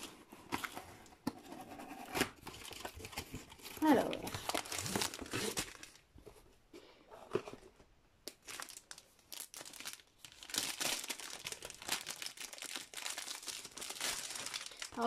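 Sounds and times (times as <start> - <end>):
plastic wrapping crinkling: 2.4 - 6.1, 8.2 - 15.0.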